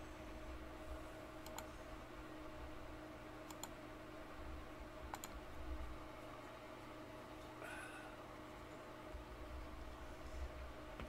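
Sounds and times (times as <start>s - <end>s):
faint low hum: 0.0s - 11.0s
computer mouse clicking: 1.4s - 1.7s, 3.4s - 3.8s, 5.1s - 5.4s.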